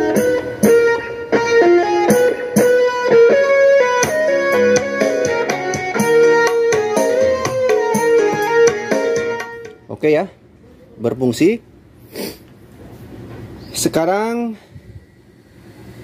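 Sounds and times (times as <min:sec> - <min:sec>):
plucked music through small speaker: 0:00.0 - 0:09.9.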